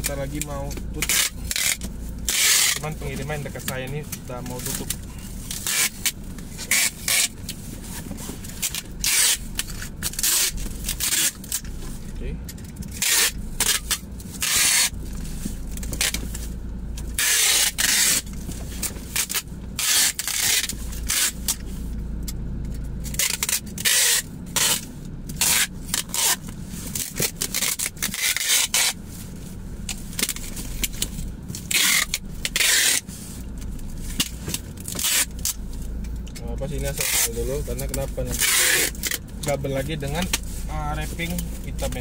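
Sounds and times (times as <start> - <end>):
packing tape screeching off dispenser: 1.0 - 2.8, 5.5 - 7.4, 8.6 - 11.6, 12.9 - 15.0, 17.1 - 18.3, 19.1 - 21.6, 23.1 - 24.8, 25.4 - 29.0, 31.7 - 33.1, 34.8 - 35.6, 36.9 - 37.4, 38.3 - 39.2
tape rubbed onto cardboard: 14.4 - 15.0.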